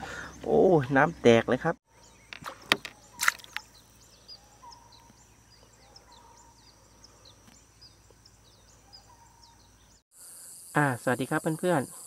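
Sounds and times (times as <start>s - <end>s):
small birds chirping: 0.0s - 12.0s
sharp water splashes: 2.4s - 3.7s.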